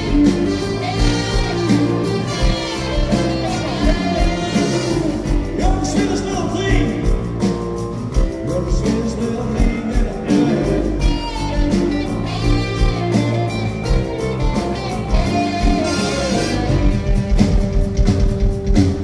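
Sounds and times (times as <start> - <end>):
saxophone: 0.0 - 5.9, 10.2 - 18.7
trumpet: 0.0 - 6.9, 10.3 - 17.8
trombone: 0.0 - 7.1, 8.5 - 17.9
drums: 0.0 - 19.0
electric guitar: 0.0 - 19.0
keyboard: 0.0 - 19.0.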